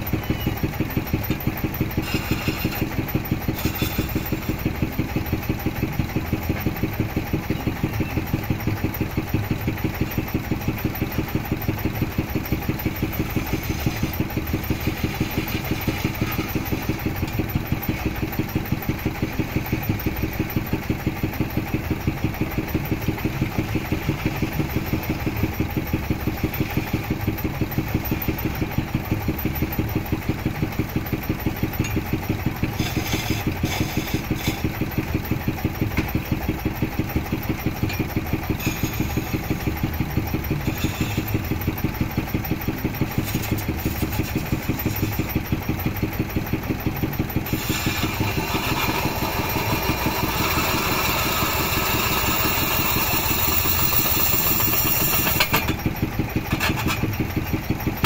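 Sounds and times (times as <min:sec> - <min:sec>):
wood lathe pulsing: 0:00.6 - 0:58.0
chisel scraping spinning wood: 0:02.0 - 0:04.7, 0:12.6 - 0:18.0, 0:32.7 - 0:35.0, 0:38.4 - 0:45.9, 0:46.8 - 0:55.8.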